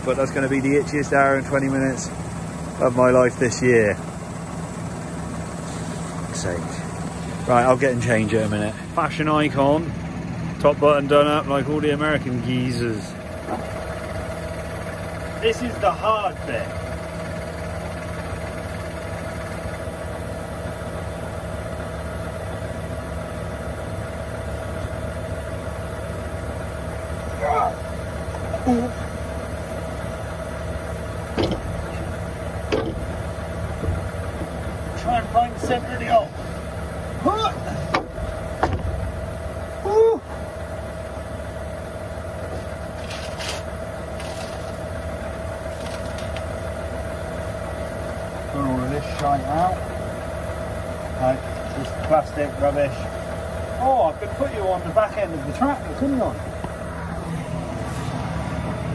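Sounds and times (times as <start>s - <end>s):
engine whine: 0.0s - 58.9s
tractor engine idling: 0.0s - 58.9s
short scraping rustles: 42.6s - 44.8s.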